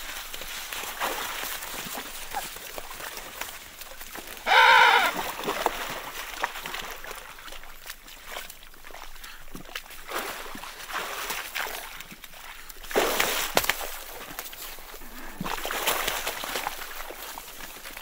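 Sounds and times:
faint clicks and splashes: 0:00.0 - 0:04.5, 0:05.1 - 0:18.0
penguin call: 0:04.5 - 0:05.2.

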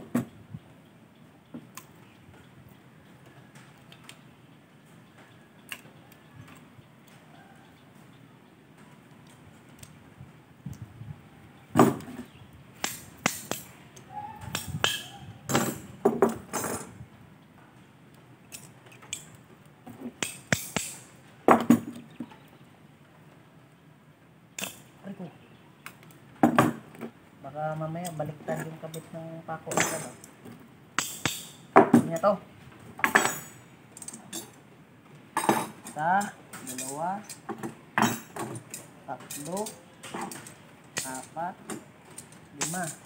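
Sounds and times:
metal horseshoes clinking: 0:12.8 - 0:17.0, 0:18.5 - 0:22.3, 0:24.6 - 0:25.0, 0:29.7 - 0:30.4, 0:31.0 - 0:32.3, 0:33.0 - 0:34.6, 0:35.4 - 0:43.0.

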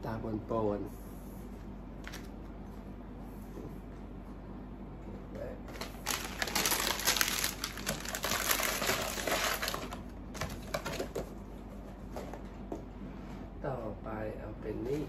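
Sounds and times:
plastic packaging crinkling: 0:05.7 - 0:11.3.

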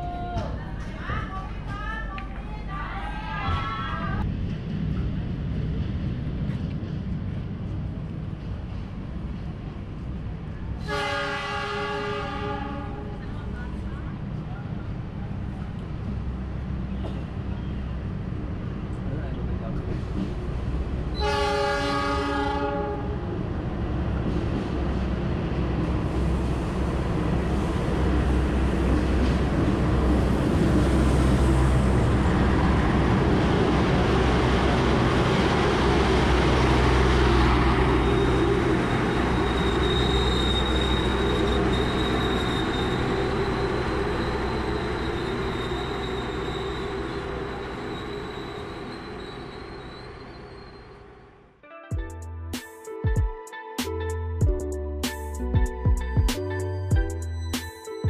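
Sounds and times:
train rumbling past: 0:00.0 - 0:51.6
train horn blast: 0:10.8 - 0:13.3, 0:21.1 - 0:23.2
thin high squeal: 0:38.0 - 0:51.1.

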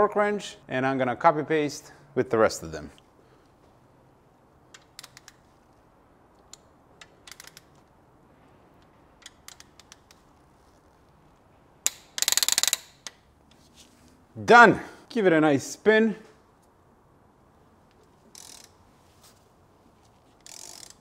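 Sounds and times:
ratchet clicks: 0:04.7 - 0:05.4, 0:06.4 - 0:07.9, 0:08.8 - 0:10.4, 0:11.8 - 0:13.3, 0:18.0 - 0:18.8, 0:20.4 - 0:21.0
torque wrench clicks: 0:04.7 - 0:05.4, 0:06.4 - 0:07.8, 0:09.2 - 0:10.2, 0:11.8 - 0:13.2, 0:18.3 - 0:18.8, 0:20.4 - 0:21.0.

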